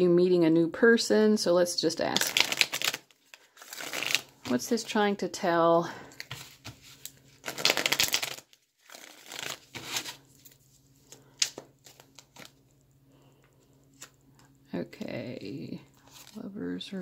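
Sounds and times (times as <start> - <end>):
cards rustling while shuffled: 2.1 - 4.8, 6.2 - 12.6, 16.0 - 16.4.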